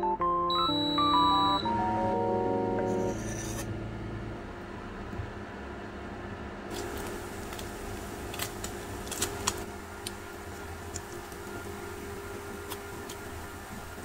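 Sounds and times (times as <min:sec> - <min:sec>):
steady low hum: 0:01.6 - 0:14.0
fat popping and crackling in pan: 0:06.7 - 0:11.6.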